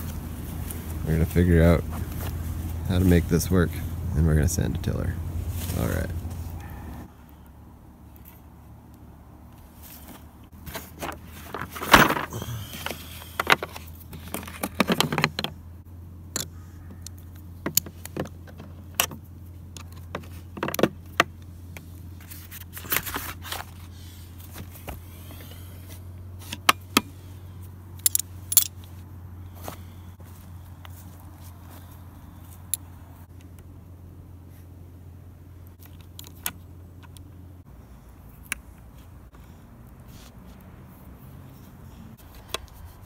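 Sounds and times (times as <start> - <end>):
steady low hum: 0.0 - 40.1
metal tools clinking and rattling: 28.0 - 28.8.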